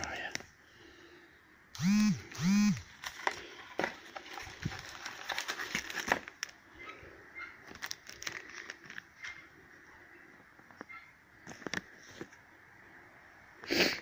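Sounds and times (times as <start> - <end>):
packaging crinkling: 2.8 - 6.6, 7.6 - 9.1
rummaging in cardboard box: 2.9 - 6.5, 7.7 - 9.0.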